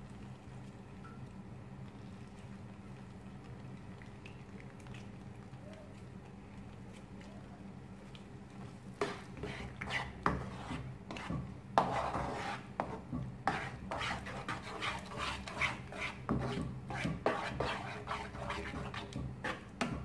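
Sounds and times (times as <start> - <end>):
wooden spatula scraping pan: 9.0 - 20.0.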